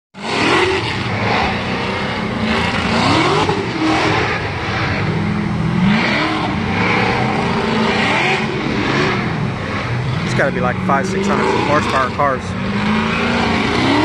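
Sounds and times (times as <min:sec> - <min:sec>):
car engines revving hard: 0:00.2 - 0:14.0
tires screeching: 0:00.2 - 0:14.0.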